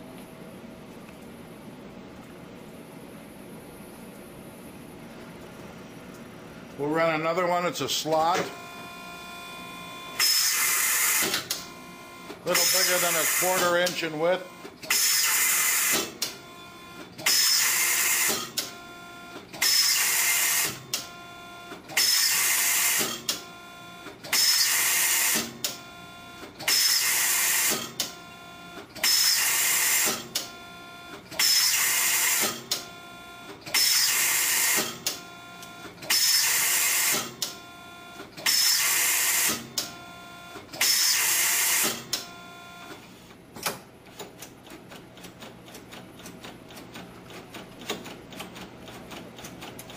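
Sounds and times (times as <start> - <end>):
machine harsh noisy bursts: 8.3 - 20.9, 22.0 - 32.7, 33.7 - 35.1, 36.0 - 42.9
whining motor: 8.3 - 43.1.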